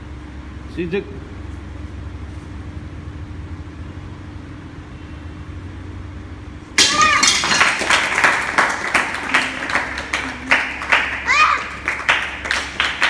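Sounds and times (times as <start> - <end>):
person shouting: 6.8 - 7.4, 11.2 - 11.8
tiles breaking with a crash: 6.8 - 7.9
hand clapping: 6.8 - 13.0.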